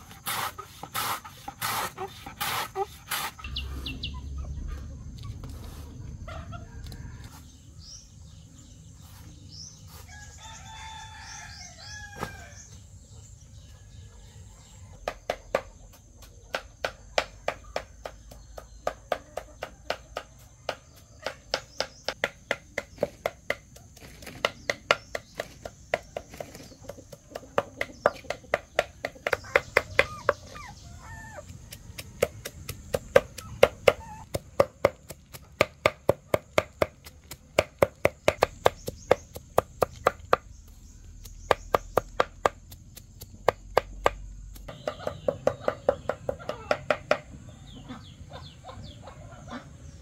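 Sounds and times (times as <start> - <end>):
rooster crowing: 10.1 - 12.7.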